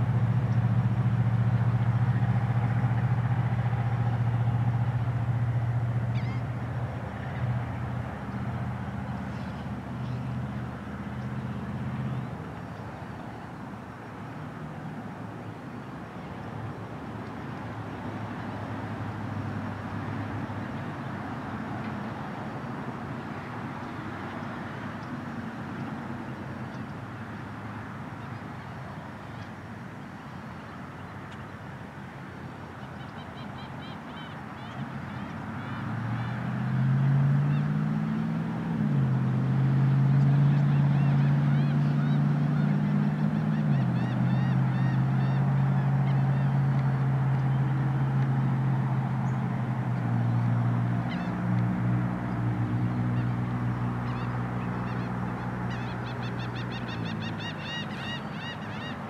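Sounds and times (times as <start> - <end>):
boat engine droning: 0.0 - 59.0
noisy wash: 0.0 - 59.0
birds chirping: 52.2 - 59.0.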